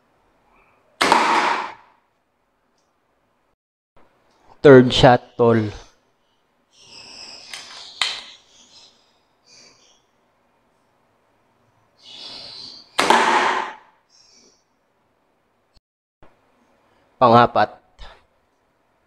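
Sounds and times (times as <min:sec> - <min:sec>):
air gun shot crack: 0:01.0 - 0:02.0, 0:13.0 - 0:13.9.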